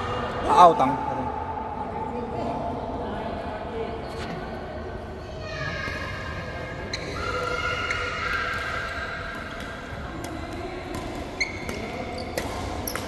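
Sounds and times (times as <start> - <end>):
shoes squeaking on court floor: 6.9 - 7.2, 11.4 - 13.0
racket hitting shuttlecock: 8.3 - 13.0.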